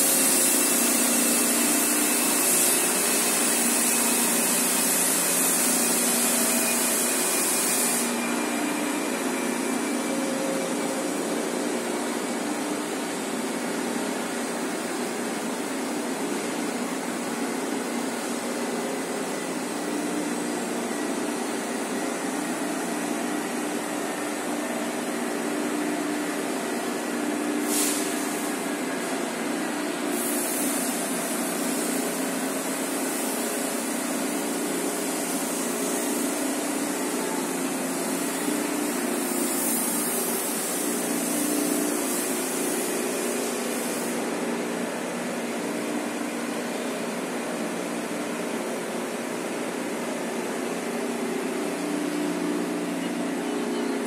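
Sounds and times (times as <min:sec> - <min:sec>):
machine rollers whirring: 0:00.0 - 0:54.0
loud high hiss: 0:26.4 - 0:28.9.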